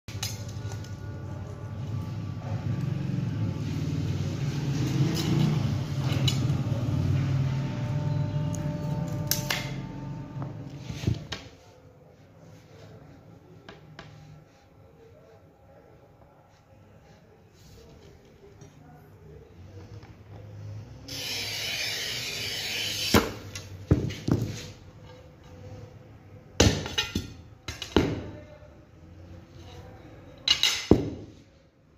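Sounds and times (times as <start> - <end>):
glass cutter scoring glass: 8.5 - 10.2, 21.1 - 23.7.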